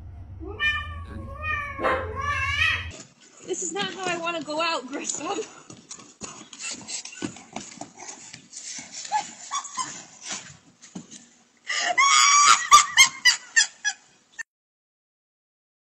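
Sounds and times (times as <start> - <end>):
woman laughing loudly: 11.8 - 14.0.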